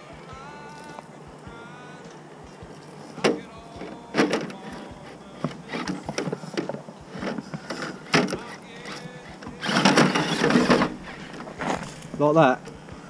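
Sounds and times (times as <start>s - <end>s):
toy crawler knocking and clattering: 3.2s - 11.0s.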